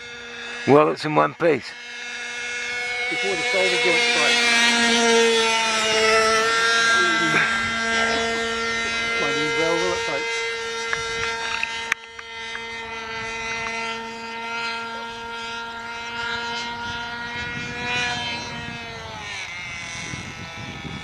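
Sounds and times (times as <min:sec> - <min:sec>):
model plane engine droning: 0:00.0 - 0:21.0.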